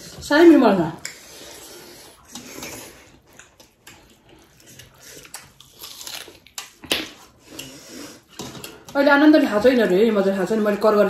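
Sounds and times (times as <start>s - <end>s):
wet chewing: 1.0s - 9.0s.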